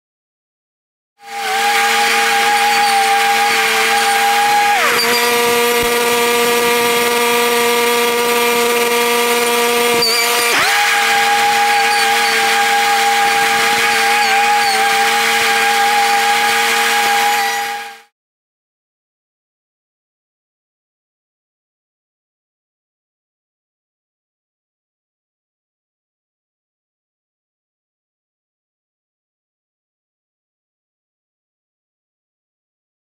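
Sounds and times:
small gas engine running: 1.2s - 18.1s.

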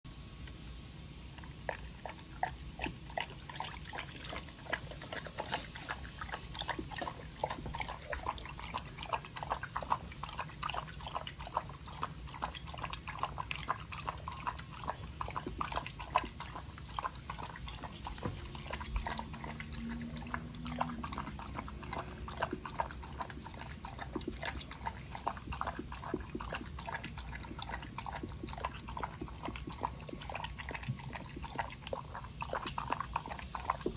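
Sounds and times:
dog lapping liquid: 0.4s - 33.9s.

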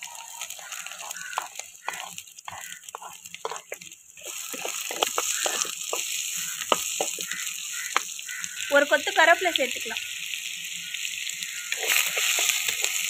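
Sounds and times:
wooden spatula scraping a pot: 0.0s - 8.0s, 11.7s - 13.0s
onions sizzling in oil: 0.0s - 13.0s.

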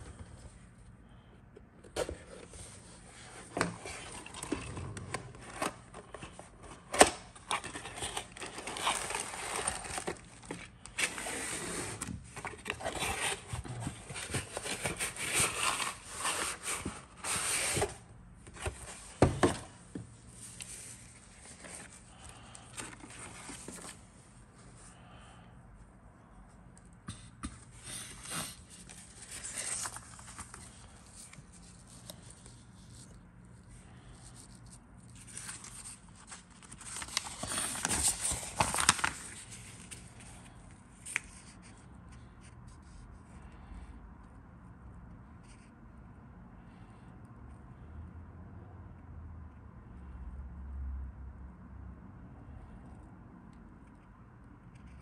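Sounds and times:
cardboard and paper rustling: 1.8s - 24.2s, 27.1s - 43.0s.

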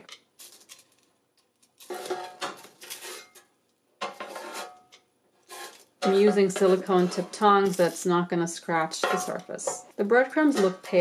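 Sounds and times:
tongs scraping air fryer basket: 4.0s - 4.8s, 5.5s - 11.0s.

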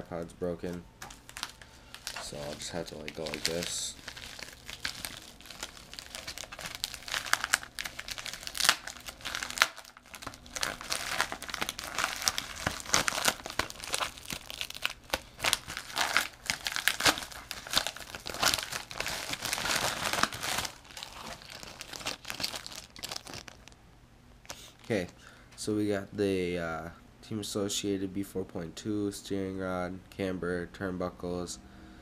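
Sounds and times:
padded envelope tearing and crinkling: 1.0s - 23.8s.

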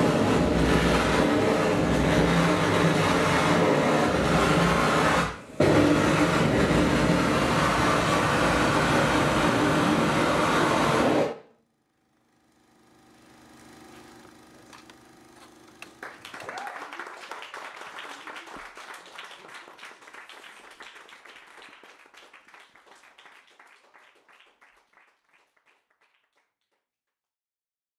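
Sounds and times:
audience applause: 0.0s - 11.2s, 15.4s - 26.5s
steady droning tone: 0.0s - 11.3s.

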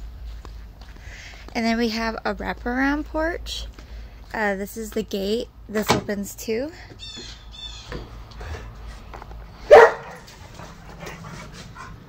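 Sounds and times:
dog barking: 9.7s - 10.3s.

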